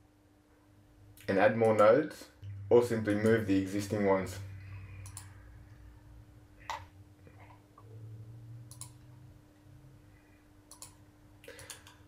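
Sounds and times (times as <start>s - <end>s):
low steady hum: 0.0s - 12.0s
faint computer mouse clicks: 5.0s - 5.3s, 8.7s - 9.0s, 10.7s - 12.0s.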